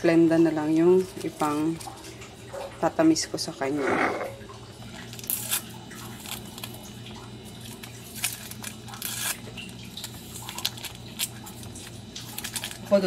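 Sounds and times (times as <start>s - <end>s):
paper packet tearing and crinkling: 5.1s - 13.0s.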